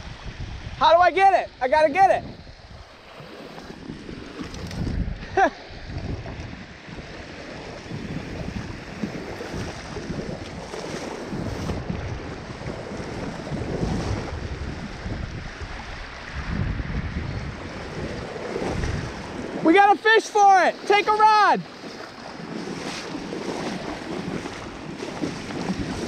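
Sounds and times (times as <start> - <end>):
rushing creek water: 0.0 - 26.0
wind buffeting microphone: 0.0 - 26.0
splashing from wading: 2.8 - 5.6, 6.3 - 15.0, 17.5 - 26.0.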